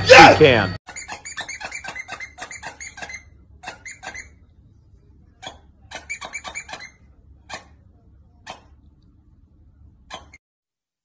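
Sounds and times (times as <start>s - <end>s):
squeaky toy squeaking: 0.9s - 4.5s, 5.4s - 7.8s, 8.4s - 8.8s, 10.0s - 10.4s.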